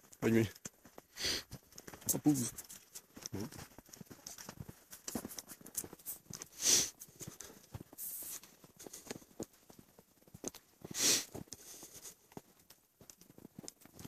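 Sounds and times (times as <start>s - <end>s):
footsteps crunching through snow: 0.0s - 14.0s.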